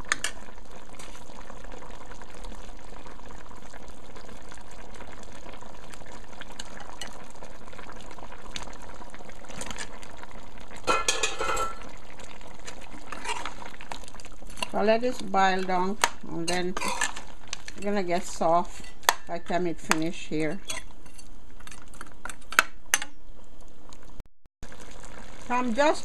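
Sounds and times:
pot of curry bubbling: 0.0s - 26.0s
potatoes clattering into pot: 10.9s - 11.9s, 15.6s - 18.0s.

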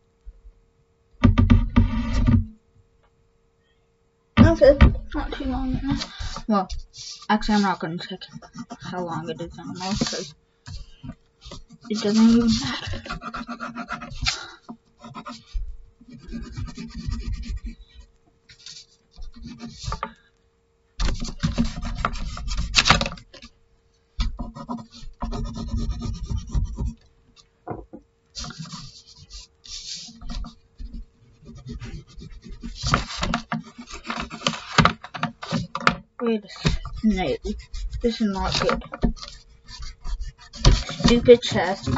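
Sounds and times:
pencil scratching on paper: 1.5s - 2.4s, 4.4s - 20.2s, 21.0s - 23.2s, 24.2s - 27.0s, 28.4s - 35.7s, 36.4s - 41.9s
hand rubbing paper: 4.5s - 20.2s, 21.0s - 23.4s, 28.4s - 35.8s, 36.5s - 41.9s.

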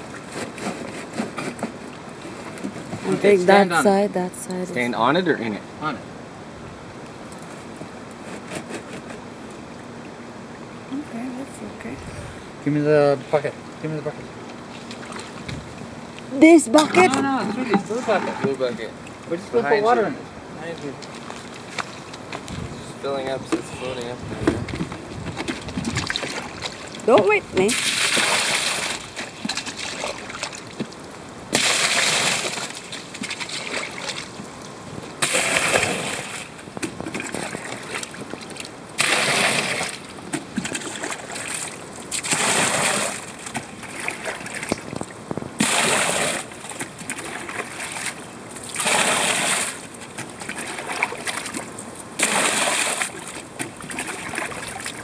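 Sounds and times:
water sloshing: 14.1s - 19.5s, 20.7s - 55.0s
water pouring and splashing: 24.3s - 55.0s.

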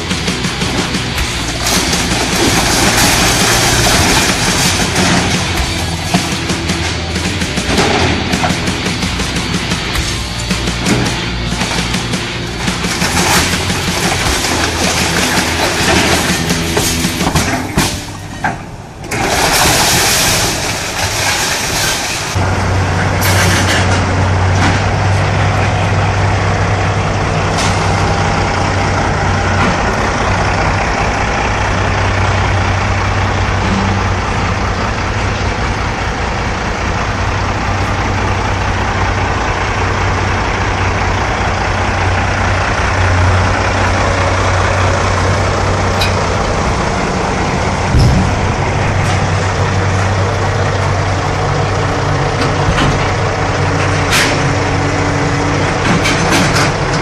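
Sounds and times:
heavy diesel engines running: 0.0s - 57.0s
loud thump: 47.8s - 49.2s.

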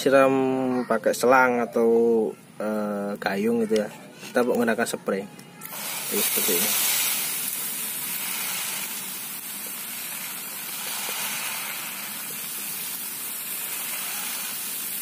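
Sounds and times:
water sprayer hissing: 5.6s - 15.0s.

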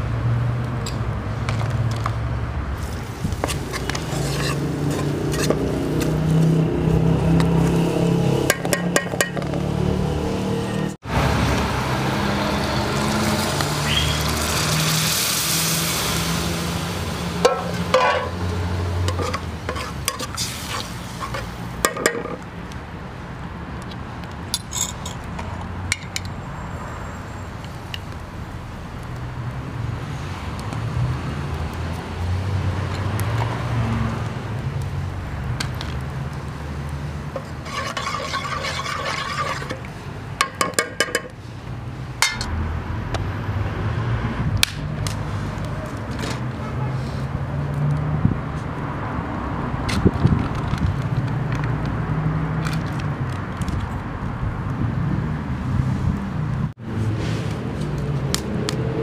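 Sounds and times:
water sizzling in hot pot: 12.8s - 17.8s, 20.1s - 21.6s.

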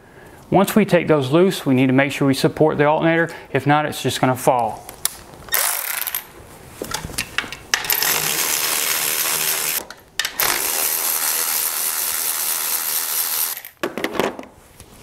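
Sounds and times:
electric ratchet motor running: 5.5s - 6.2s, 7.9s - 9.8s, 10.4s - 13.8s
electric ratchet clicks: 5.5s - 6.3s, 7.8s - 13.8s.

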